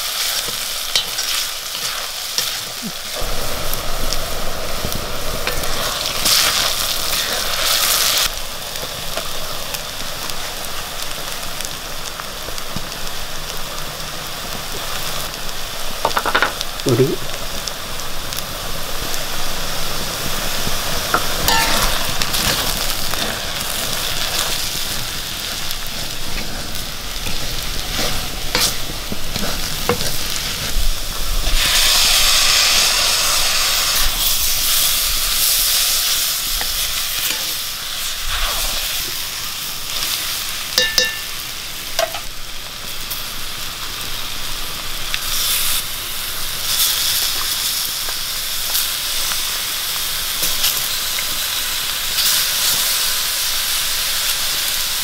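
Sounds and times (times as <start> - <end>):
onions sizzling in oil: 0.0 - 55.0
spoon scraping a pan: 21.2 - 23.3, 26.3 - 30.8.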